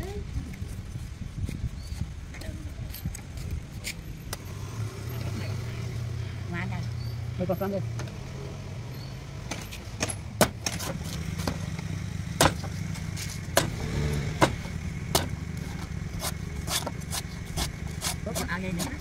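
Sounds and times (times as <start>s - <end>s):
low motor hum: 4.3s - 19.0s
knife chopping coconut husk: 12.4s - 12.8s, 16.2s - 19.0s.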